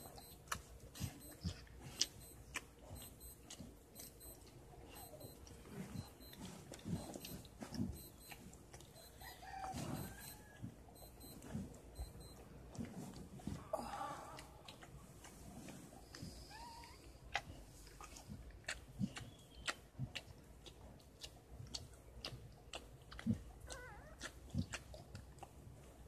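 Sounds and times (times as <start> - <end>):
dog licking: 16.1 - 26.0
puppy squeak: 23.7 - 24.2.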